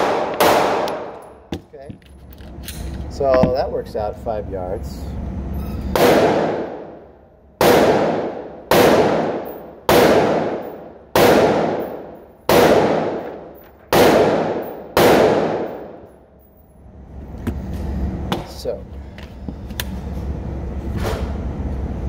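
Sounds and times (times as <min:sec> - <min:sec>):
pistol shots: 0:00.0 - 0:01.4, 0:05.9 - 0:07.0, 0:07.6 - 0:16.0.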